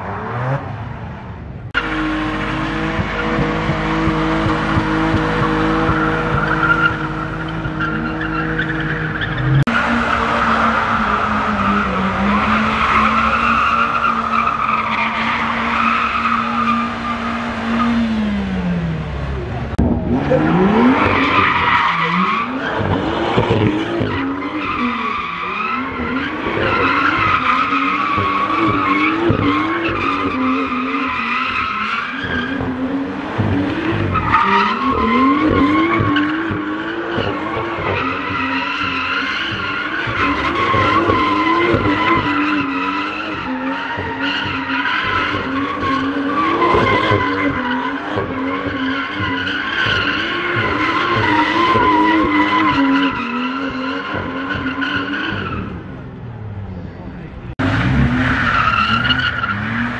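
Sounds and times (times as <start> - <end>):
car engine at high revs: 0.0 - 59.9.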